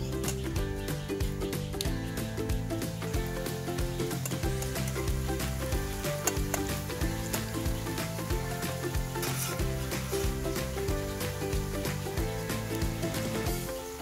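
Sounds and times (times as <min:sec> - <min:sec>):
background music: 0:00.0 - 0:14.0
vegetables sizzling in hot oil: 0:01.9 - 0:14.0
metal spoon stirring in pan: 0:09.1 - 0:10.4.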